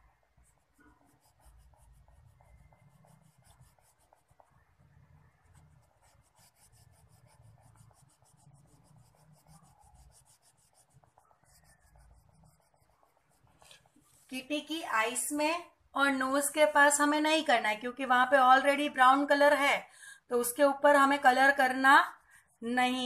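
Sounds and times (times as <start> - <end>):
crayon scratching on paper: 0.1 - 14.5.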